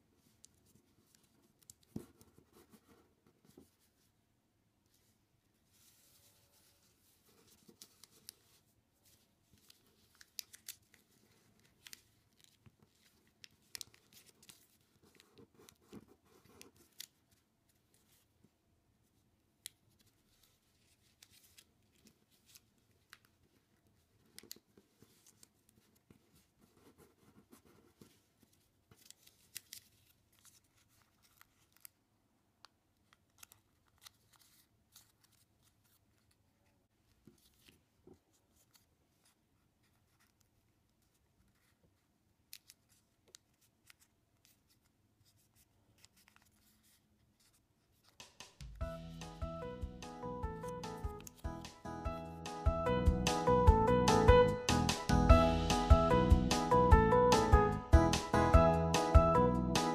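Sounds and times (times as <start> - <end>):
paper rustling and crackling: 5.0 - 18.3, 19.9 - 32.0, 33.0 - 48.6.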